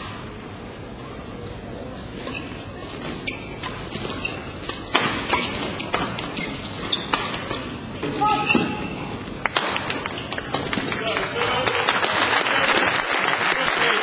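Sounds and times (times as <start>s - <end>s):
rackets hitting shuttlecock: 4.6s - 8.9s.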